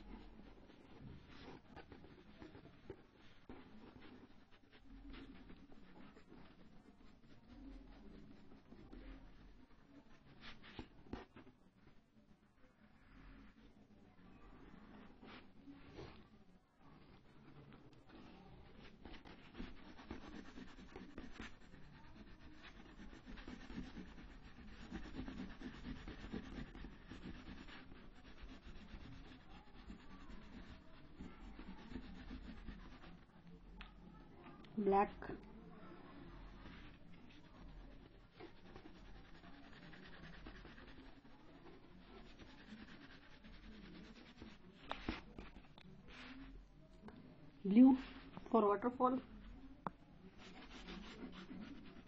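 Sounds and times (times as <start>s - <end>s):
crayon rubbing on paper: 0.0s - 11.5s, 17.0s - 33.3s, 36.1s - 46.6s, 50.3s - 52.0s.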